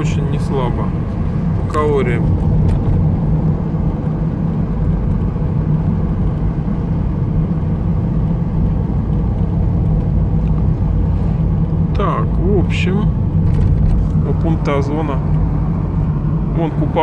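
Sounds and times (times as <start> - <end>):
car engine hum from inside: 0.0 - 17.0
tyre and road rumble: 0.0 - 17.0.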